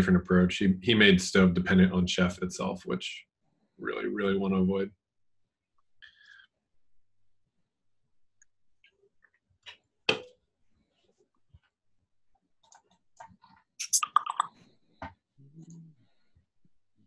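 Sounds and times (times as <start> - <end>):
keyboard and mouse clicks: 12.6 - 14.5.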